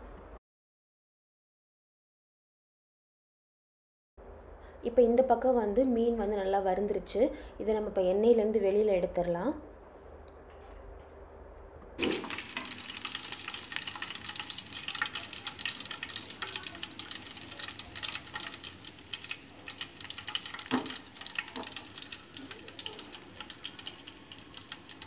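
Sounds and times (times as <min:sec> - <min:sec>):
fish sizzling in hot oil: 0:12.0 - 0:25.0.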